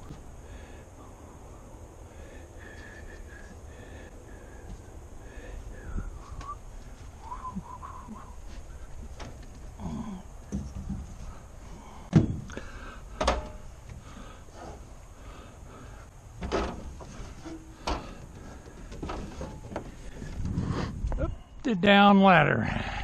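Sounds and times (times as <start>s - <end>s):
storage lid knocks and clunks: 13.2s - 13.6s, 16.4s - 17.0s
footsteps on aluminium stepladder: 13.2s - 14.0s.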